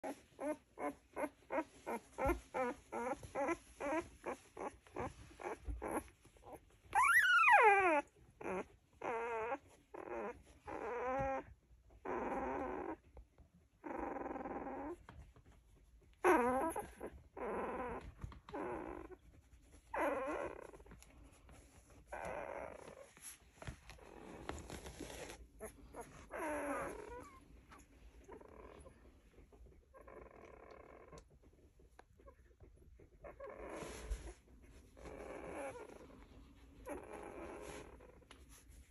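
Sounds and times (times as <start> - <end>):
puppy crying: 0.0 - 13.1, 16.2 - 21.0, 22.0 - 29.0, 35.0 - 38.0
puppies whimpering and squeaking: 0.0 - 38.9
puppy whines: 0.0 - 38.9.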